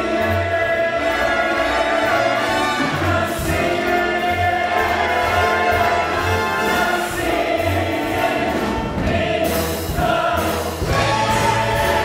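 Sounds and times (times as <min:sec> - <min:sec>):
ensemble singing in chorus: 0:00.0 - 0:12.0
orchestral accompaniment: 0:00.0 - 0:12.0.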